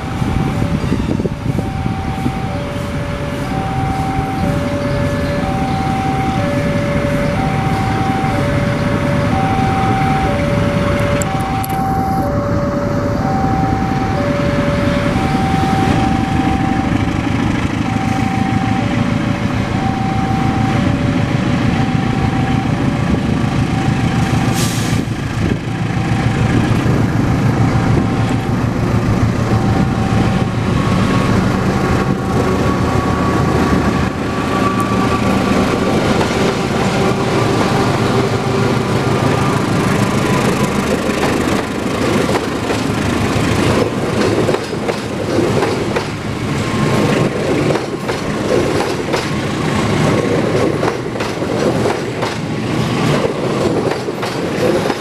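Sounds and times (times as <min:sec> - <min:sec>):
level crossing two-tone signal: 0:00.0 - 0:17.2, 0:17.8 - 0:22.9, 0:29.4 - 0:39.6
locomotive train passing: 0:00.0 - 0:55.0.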